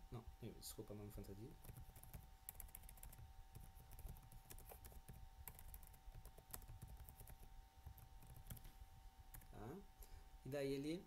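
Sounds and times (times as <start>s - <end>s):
faint keyboard typing: 1.2s - 9.8s.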